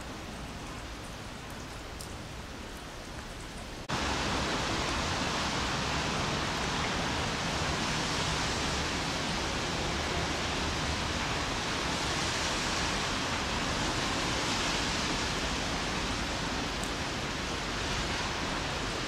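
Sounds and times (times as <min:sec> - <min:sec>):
light rain hissing: 0:00.0 - 0:19.0
raindrop ticks: 0:00.6 - 0:03.8.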